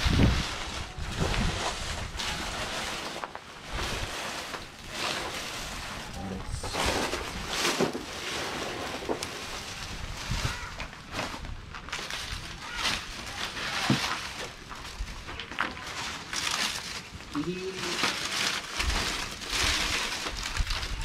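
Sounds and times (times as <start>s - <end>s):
wind gusting on microphone: 0.0s - 2.8s, 5.6s - 7.6s, 9.5s - 12.5s, 18.8s - 21.0s
faint indistinct voices: 12.3s - 14.4s.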